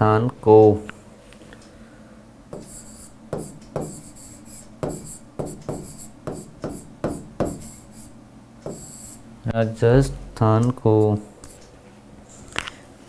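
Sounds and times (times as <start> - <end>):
stylus scratching on tablet: 2.6 - 9.2.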